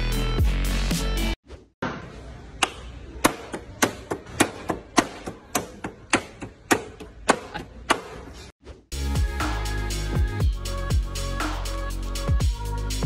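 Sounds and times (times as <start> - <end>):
hammer striking wooden crate: 2.6 - 8.4.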